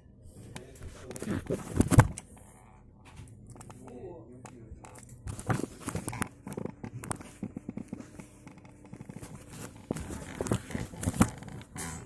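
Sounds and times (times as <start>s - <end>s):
plastic objects clicking and rustling: 3.5s - 11.8s.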